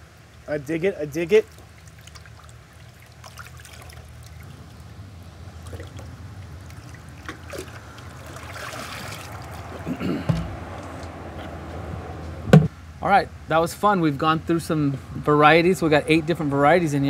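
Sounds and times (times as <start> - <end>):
water trickling and splashing: 0.0 - 10.9.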